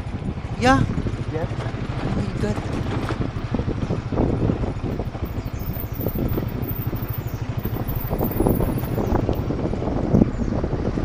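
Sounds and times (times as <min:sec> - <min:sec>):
vehicle engine running: 0:00.0 - 0:11.0
wind buffeting microphone: 0:00.0 - 0:11.0.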